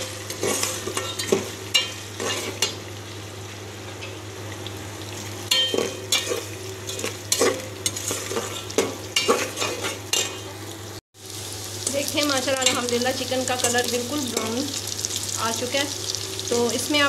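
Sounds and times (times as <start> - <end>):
metal spatula scraping pot: 0.0 - 2.8, 5.5 - 10.5
chicken sizzling in oil: 0.0 - 17.0.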